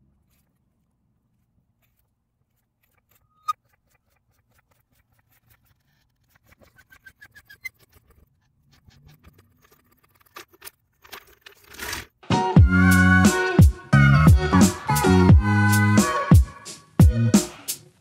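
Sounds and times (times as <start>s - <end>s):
faint clicks and ticks: 1.8s - 12.0s.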